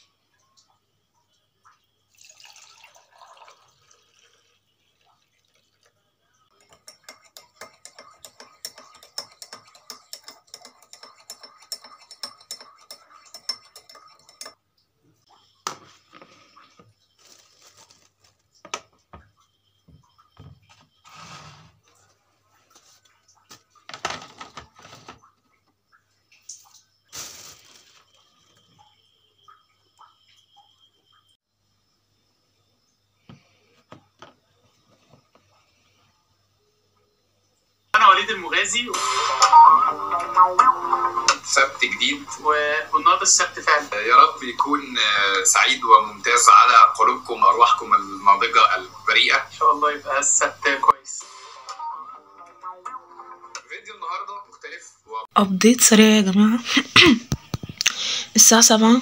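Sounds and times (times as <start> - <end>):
milk pouring into mug: 2.1 - 14.5
spoon clinking in mug: 6.5 - 14.6.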